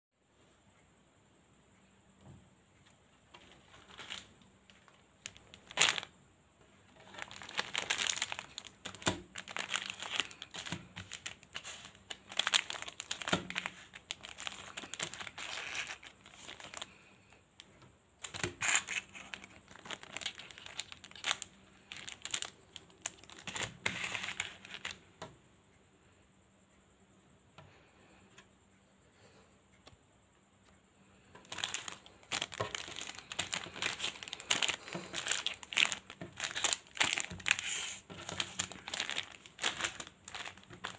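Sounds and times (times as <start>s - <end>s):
plastic sachets crinkling: 3.4s - 6.1s, 6.9s - 17.4s, 18.2s - 25.0s, 31.3s - 40.9s.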